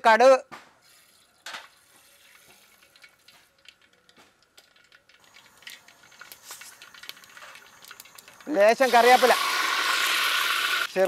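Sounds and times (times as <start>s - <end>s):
mustard seeds popping in oil: 2.3s - 11.0s.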